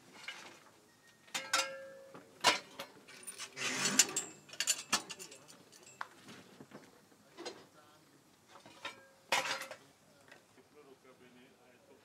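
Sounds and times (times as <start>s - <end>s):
metallic clicks and clanks: 2.4s - 6.1s.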